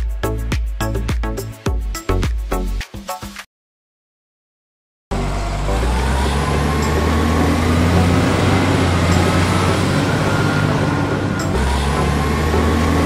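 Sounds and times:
faint whine rising in pitch: 0:05.1 - 0:13.0
truck engine running: 0:05.1 - 0:13.0.

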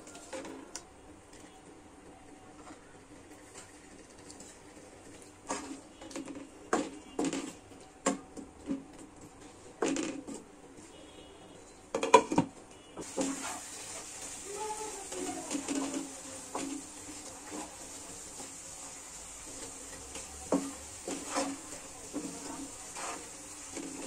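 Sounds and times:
wooden spatula scraping pan: 0:13.0 - 0:24.0.

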